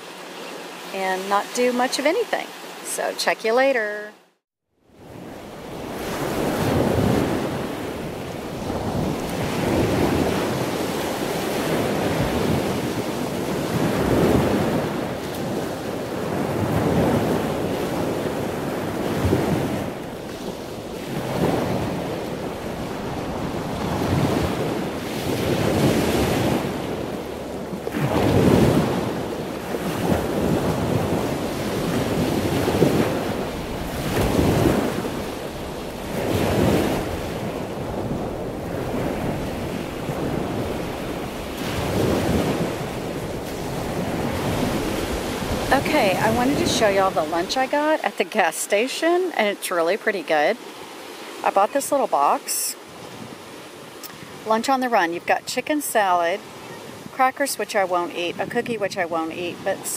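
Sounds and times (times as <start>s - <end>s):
wind on microphone: 4.9s - 48.0s
surf washing onto sandy beach: 5.0s - 59.9s.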